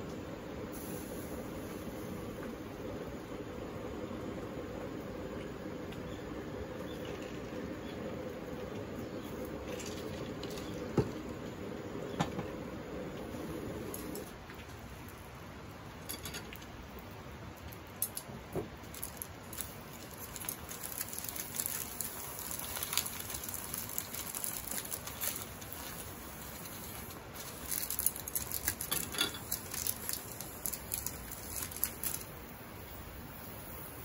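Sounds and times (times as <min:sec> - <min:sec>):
baking paper crinkling: 0:18.8 - 0:32.4.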